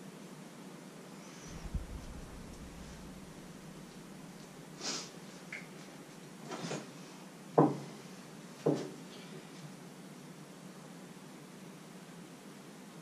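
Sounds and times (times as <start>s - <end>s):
soft sniffs: 4.8s - 5.2s.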